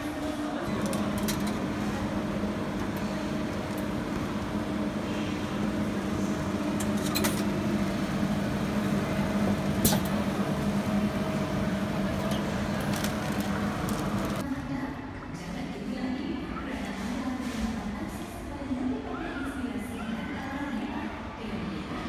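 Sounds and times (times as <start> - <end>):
vending machine humming: 0.0 - 14.4.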